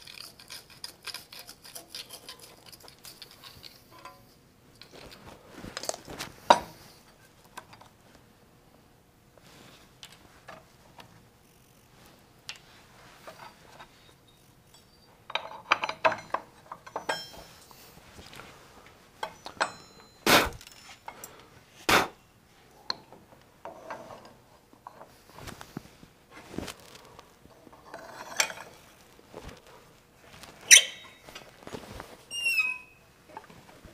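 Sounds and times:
metal clinks and knocks: 14.7 - 17.8, 19.2 - 21.3.

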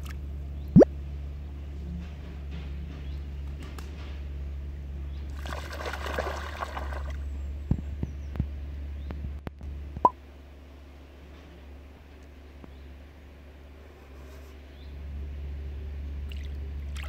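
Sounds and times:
sharp drip-like clicks: 0.0 - 0.2
water splashing around wading dog: 5.3 - 7.2.

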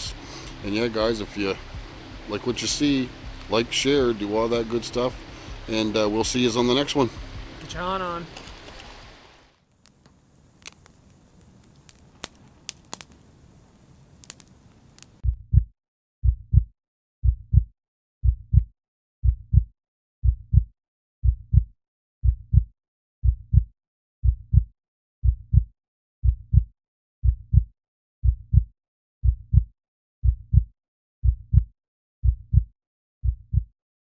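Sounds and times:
heartbeat double thump: 15.2 - 33.7.

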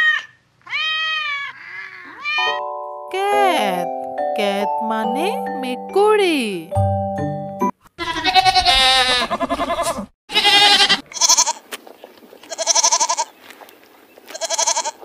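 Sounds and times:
goats bleating: 8.0 - 11.6, 12.4 - 13.3, 14.3 - 15.0.

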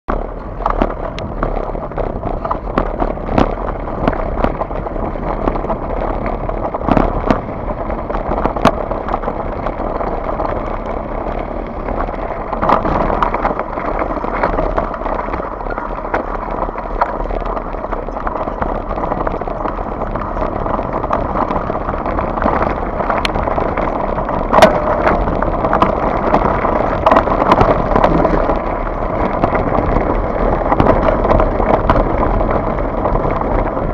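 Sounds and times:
mountain bike rattling over gravel: 0.1 - 33.9
sharp clacks of impacts: 0.1 - 33.9.

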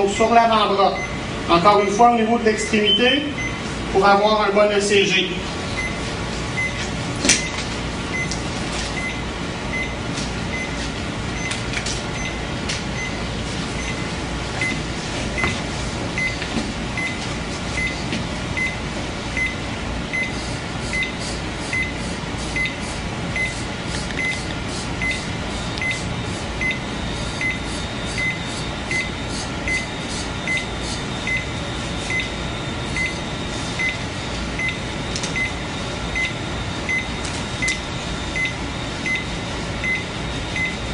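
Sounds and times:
room hum: 0.0 - 40.9
heart monitor beeping: 5.8 - 6.0, 6.6 - 18.8, 19.4 - 40.9.

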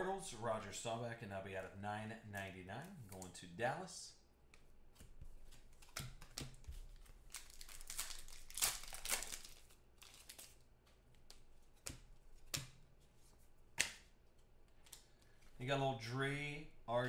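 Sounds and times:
foil wrapper tearing and crinkling: 7.0 - 10.6.

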